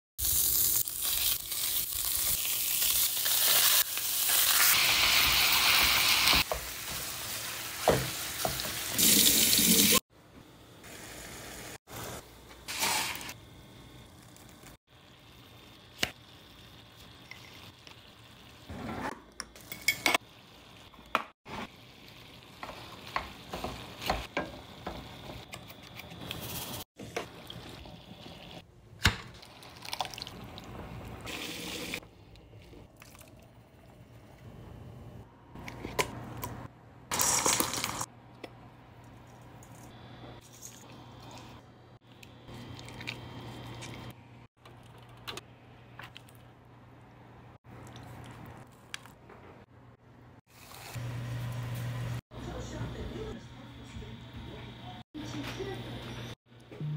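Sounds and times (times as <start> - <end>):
meat sizzling in a skillet: 0.2 - 9.9.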